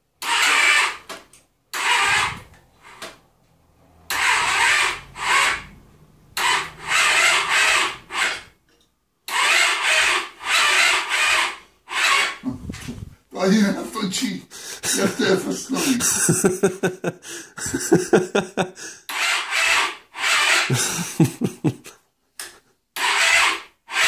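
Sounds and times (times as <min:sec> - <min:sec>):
motorcycle starter whirring: 0:00.2 - 0:03.2, 0:03.9 - 0:08.6, 0:09.2 - 0:12.8, 0:19.1 - 0:21.1, 0:23.0 - 0:24.0.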